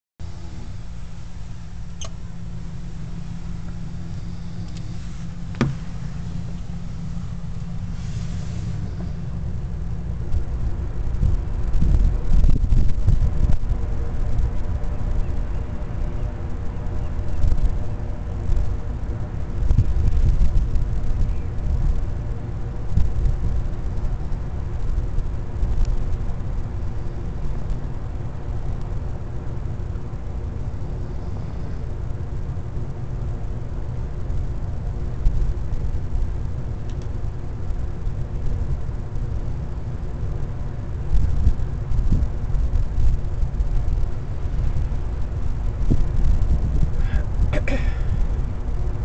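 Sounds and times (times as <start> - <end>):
low rumble: 0.2 - 49.0
machinery hum: 0.2 - 49.0
brief bumps: 4.7 - 6.7.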